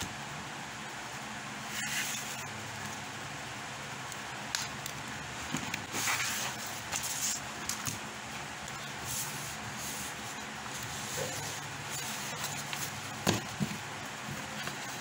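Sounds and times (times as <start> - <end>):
steady low hum: 0.0 - 15.0
paper sheets rustling: 5.4 - 8.0, 8.9 - 15.0.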